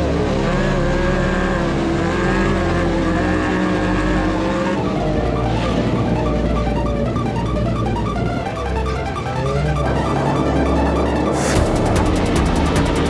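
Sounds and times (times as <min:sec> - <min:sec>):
engine running at high revs: 0:00.0 - 0:13.0
piano-like music: 0:04.3 - 0:13.0.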